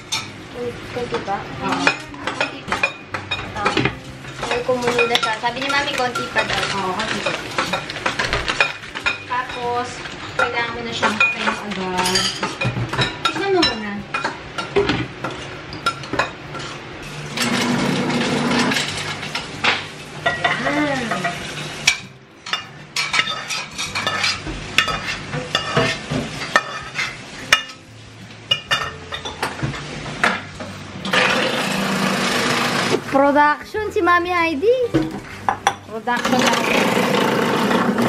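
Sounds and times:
metal spoon clinking on pans: 0.0s - 0.4s, 1.6s - 27.9s, 28.5s - 31.4s
frying pan sizzling: 0.0s - 38.0s.

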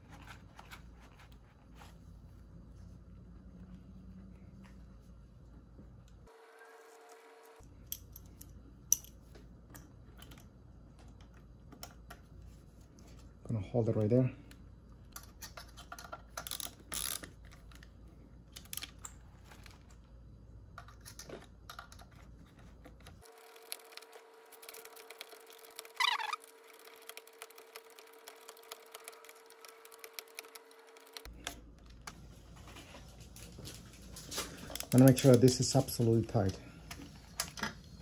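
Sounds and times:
wrench clicks and metallic taps: 7.9s - 9.8s
short high squeak: 26.0s - 26.4s.

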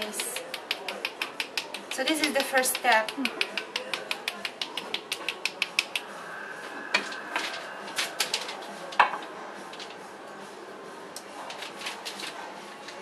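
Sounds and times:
brush tapping: 0.0s - 6.2s.

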